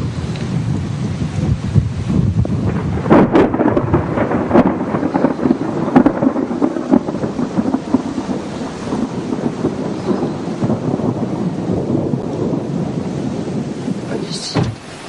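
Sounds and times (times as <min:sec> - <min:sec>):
sharp thunder cracks: 0:00.0 - 0:14.9
thunder rumble: 0:00.0 - 0:15.0
wind on microphone: 0:00.0 - 0:15.0.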